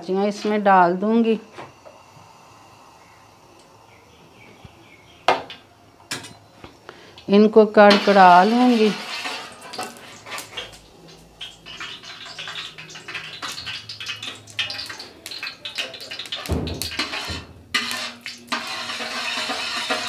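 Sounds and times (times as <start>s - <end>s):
metal spoon scraping a steel pot: 7.8s - 10.7s, 16.3s - 20.0s.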